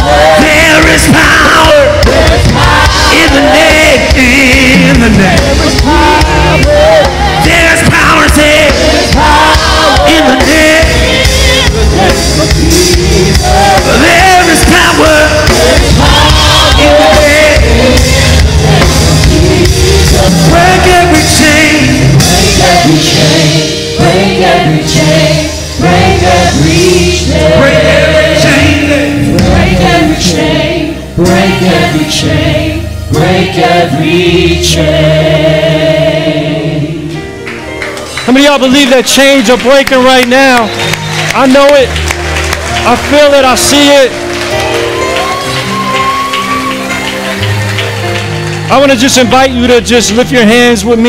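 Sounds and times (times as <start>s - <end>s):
group of voices singing: 0.0s - 37.4s
worship band playing: 0.0s - 51.0s.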